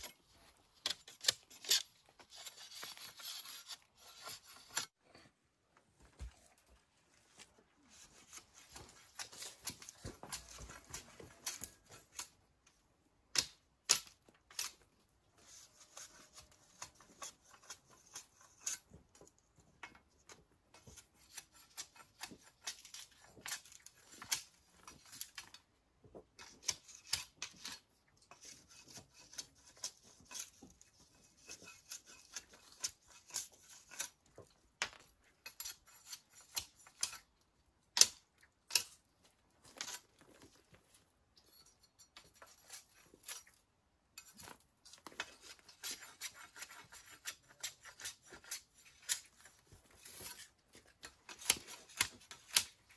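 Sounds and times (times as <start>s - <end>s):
machete scraping bamboo: 0.0s - 5.0s, 7.9s - 12.4s, 13.4s - 14.8s, 15.4s - 19.0s, 20.8s - 25.6s, 26.4s - 34.2s, 35.4s - 37.3s, 39.7s - 40.6s, 41.5s - 43.6s, 44.2s - 52.9s.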